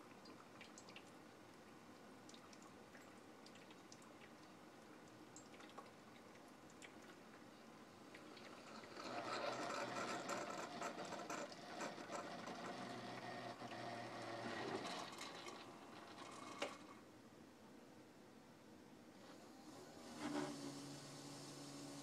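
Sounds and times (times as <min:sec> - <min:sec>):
coffee maker rattling: 0:08.4 - 0:13.1.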